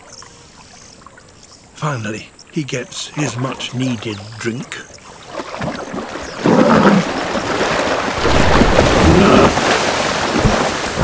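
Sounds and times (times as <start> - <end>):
heavy splashing in water: 5.3 - 11.0
deep animal growls: 6.4 - 7.2.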